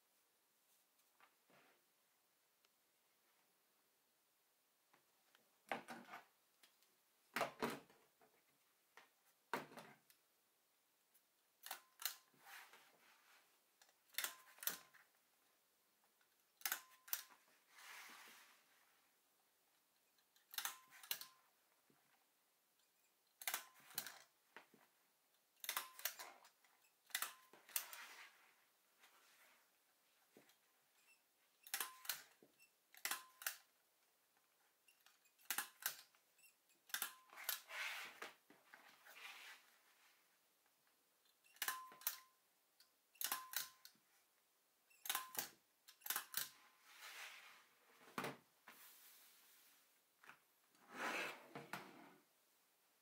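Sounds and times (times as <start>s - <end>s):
hand stapler clacking: 20.4s - 21.4s, 25.6s - 26.4s, 31.6s - 33.7s, 35.4s - 36.1s, 36.9s - 37.6s, 43.2s - 43.9s, 45.0s - 46.5s
fabric sheet rustling: 48.6s - 49.9s.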